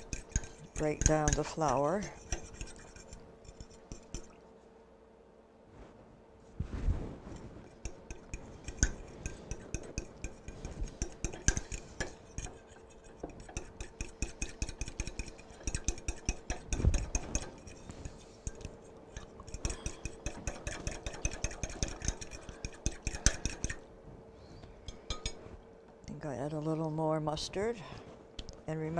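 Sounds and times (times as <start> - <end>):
whisk clinking and scraping bowl: 0.0 - 4.3, 7.3 - 23.8
faint steady hum: 0.0 - 28.9.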